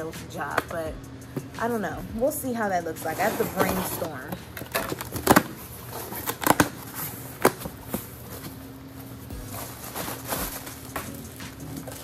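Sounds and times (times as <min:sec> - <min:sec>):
packaging rustling: 0:03.3 - 0:12.0.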